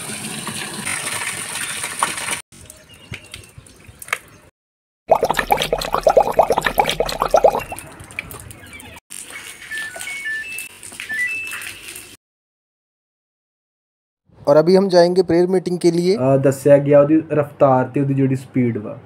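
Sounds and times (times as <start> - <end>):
hose water pouring into tub: 0.0 - 2.4, 5.1 - 7.8.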